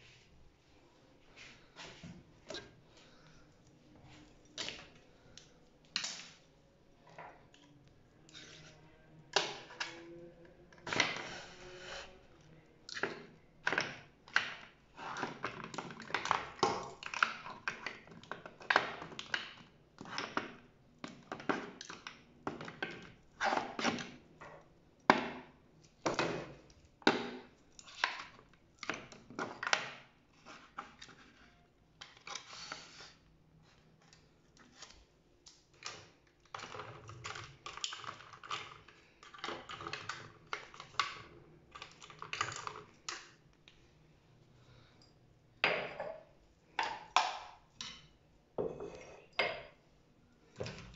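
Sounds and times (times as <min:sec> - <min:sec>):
bottles and jars knocking: 0:45.6 - 0:47.4, 0:48.6 - 0:49.7.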